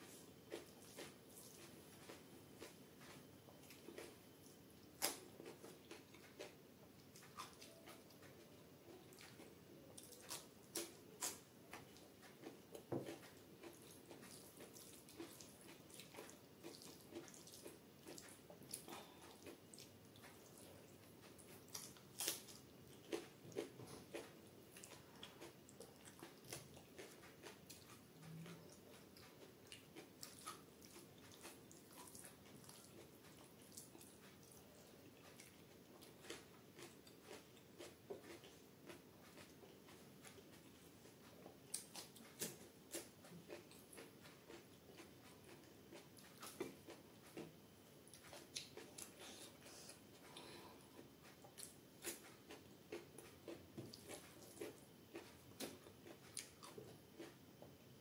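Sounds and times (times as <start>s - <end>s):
wet squishing of fingers in rice: 0.0s - 8.2s, 8.9s - 57.4s.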